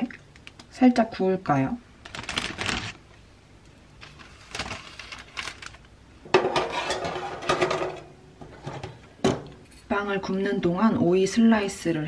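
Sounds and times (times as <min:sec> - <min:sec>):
metal tray scraping onto oven rack: 0:06.4 - 0:09.0.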